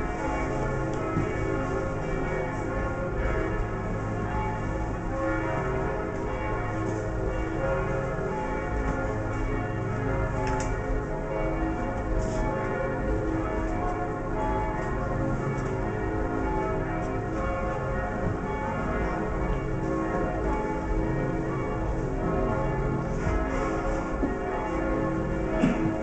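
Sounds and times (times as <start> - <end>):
church bells pealing: 0.0 - 26.0.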